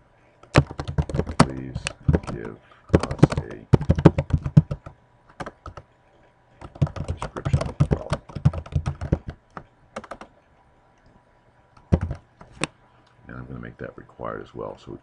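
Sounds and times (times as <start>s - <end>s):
typing on keyboard: 0.4s - 5.9s, 6.6s - 10.3s, 11.8s - 12.2s.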